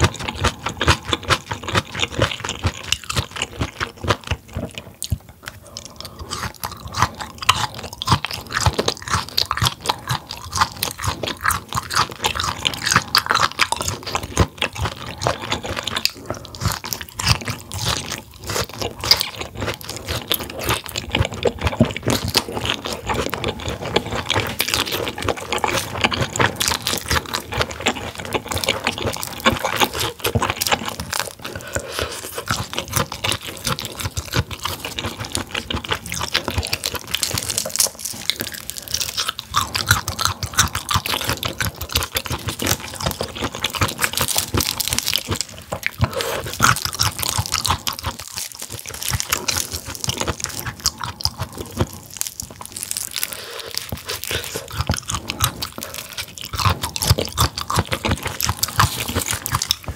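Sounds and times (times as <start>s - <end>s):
close crunchy chewing: 0.0s - 59.9s.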